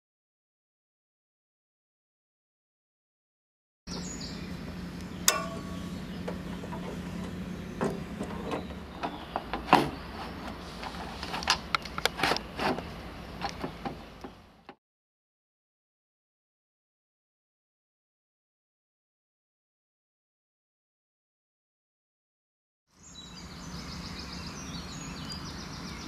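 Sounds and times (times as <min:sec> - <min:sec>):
steady low hum: 0:03.9 - 0:14.7
metal frames clicking and knocking: 0:05.3 - 0:09.9.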